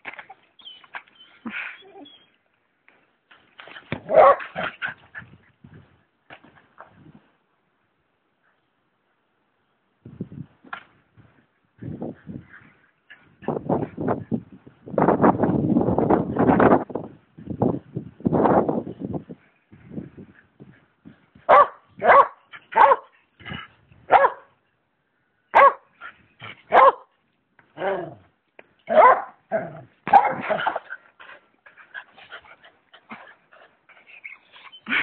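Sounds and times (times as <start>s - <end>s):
small dog barking: 4.1s - 4.6s, 21.5s - 23.1s, 24.1s - 24.5s, 25.5s - 25.8s, 26.7s - 27.1s, 28.9s - 29.4s, 30.1s - 30.8s.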